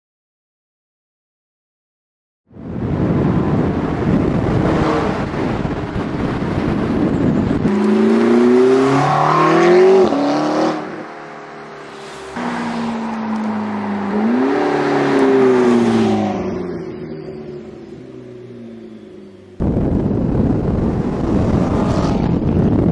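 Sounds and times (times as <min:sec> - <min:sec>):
sports car engine roaring: 0:02.6 - 0:22.9
car passing by: 0:07.7 - 0:17.8, 0:21.0 - 0:22.5.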